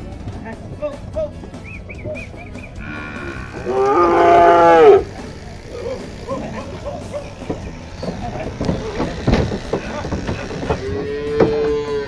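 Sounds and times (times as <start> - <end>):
cow mooing: 2.8 - 6.6, 10.3 - 12.0.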